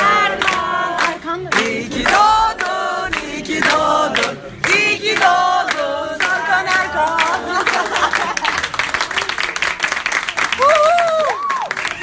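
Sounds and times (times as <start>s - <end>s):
group singing and chanting: 0.0s - 8.3s
hand claps: 0.2s - 12.0s.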